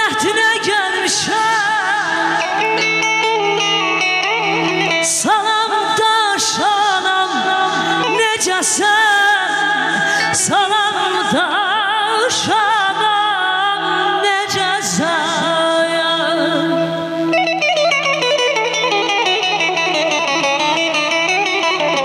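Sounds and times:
woman singing into a microphone: 0:00.0 - 0:22.0.

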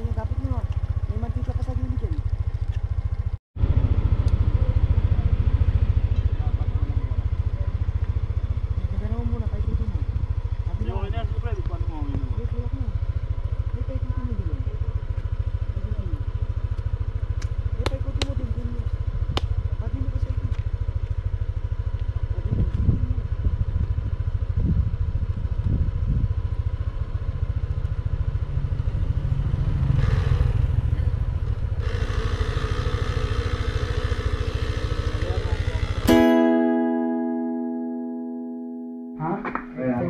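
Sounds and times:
small motor running: 0:31.7 - 0:36.1.

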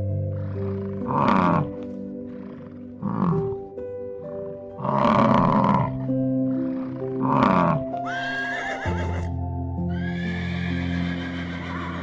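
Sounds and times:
bison bellowing: 0:00.0 - 0:08.3
background music: 0:00.0 - 0:12.0
horse whinnying: 0:04.8 - 0:12.0.

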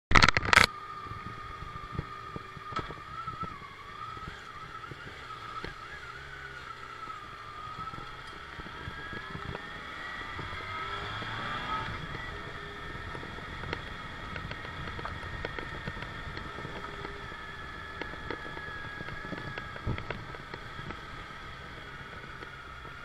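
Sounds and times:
motorcycle engine at low speed: 0:00.1 - 0:23.0
high wavering whine: 0:00.4 - 0:23.0.

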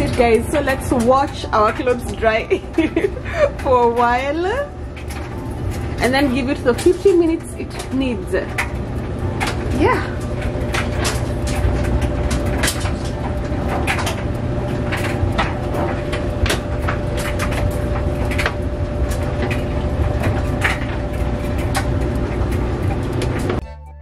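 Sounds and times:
clothes dryer motor hum: 0:00.0 - 0:23.8.

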